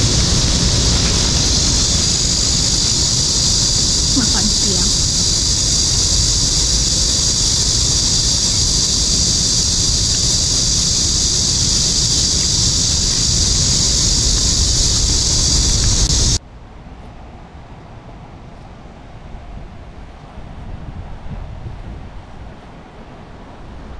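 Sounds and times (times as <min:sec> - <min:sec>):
high-pitched hiss: 0:00.0 - 0:16.4
wind rumbling on microphone: 0:00.0 - 0:23.9.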